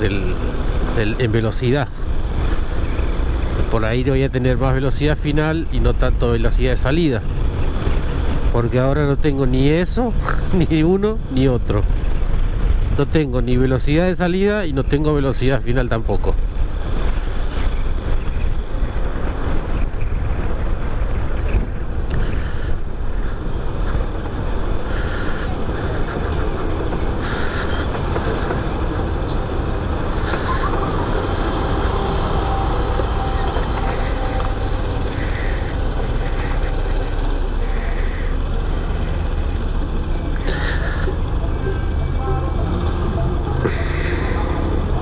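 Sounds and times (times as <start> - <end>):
road and wind noise: 0.0 - 45.0
motorcycle engine running: 23.1 - 45.0.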